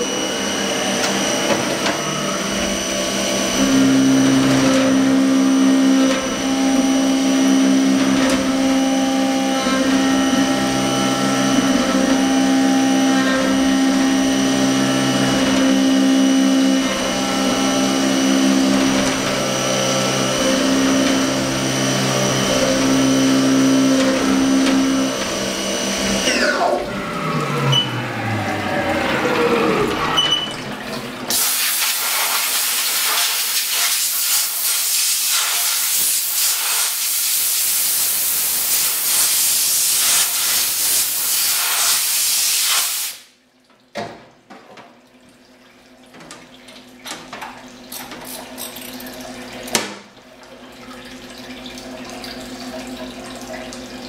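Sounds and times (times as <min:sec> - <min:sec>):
spindle winding down: 0:00.0 - 0:31.3
mill spindle cutting whine: 0:00.0 - 0:41.9
coolant spray hissing: 0:31.3 - 0:43.3.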